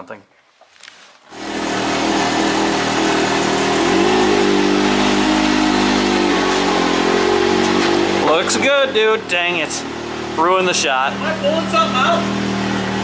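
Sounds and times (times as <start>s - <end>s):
engine starting and idling: 1.3s - 13.0s.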